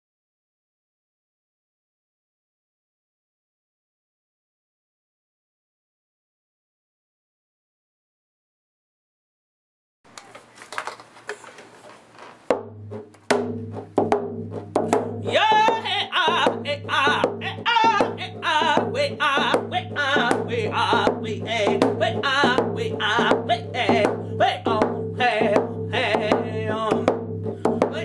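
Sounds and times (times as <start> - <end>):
hand drum beating: 12.5 - 28.0
man singing high: 15.2 - 28.0.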